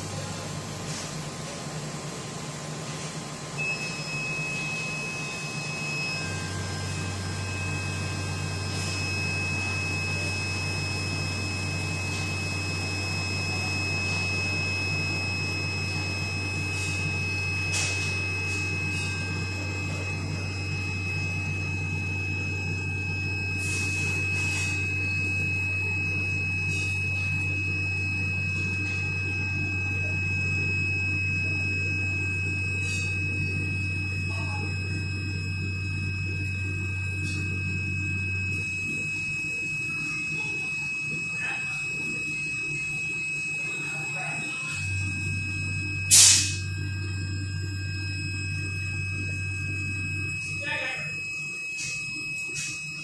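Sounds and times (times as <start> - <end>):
high-pitched machine whine: 0.0 - 53.0
laser cutter humming: 0.0 - 53.0
machine hiss: 46.1 - 46.6.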